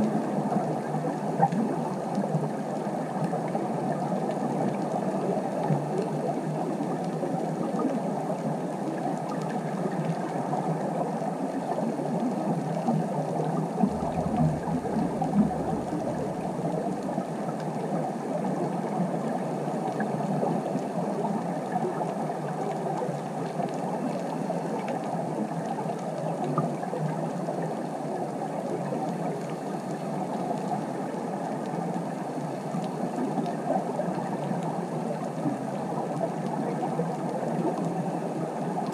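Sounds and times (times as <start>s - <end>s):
underwater rushing hiss: 13.8s - 17.4s
low rumble: 13.8s - 17.5s.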